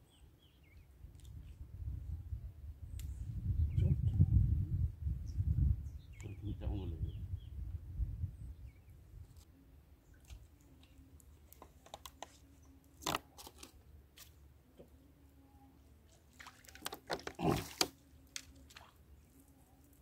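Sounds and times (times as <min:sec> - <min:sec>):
crackling clicks and crunches: 0:11.5 - 0:12.4.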